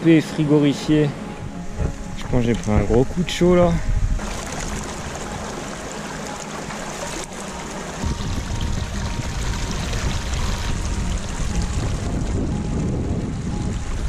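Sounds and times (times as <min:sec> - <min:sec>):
stream splashing over rocks: 0:04.2 - 0:12.6.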